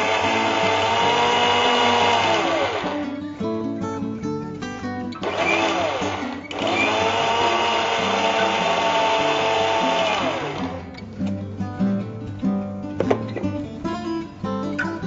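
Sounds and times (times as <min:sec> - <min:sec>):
mixer grinder motor whining: 0:00.0 - 0:03.2, 0:05.2 - 0:10.9.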